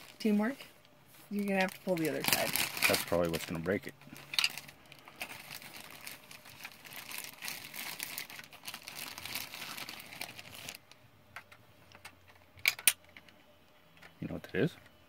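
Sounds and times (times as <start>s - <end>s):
plastic packaging crinkling: 1.3s - 10.9s.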